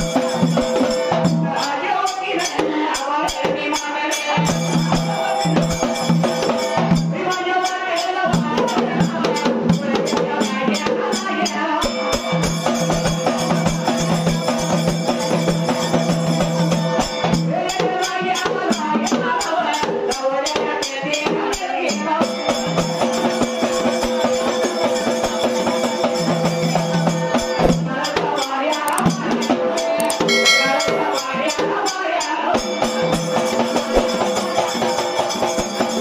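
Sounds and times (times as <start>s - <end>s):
double-headed drum beaten by hand: 22.2s - 31.8s.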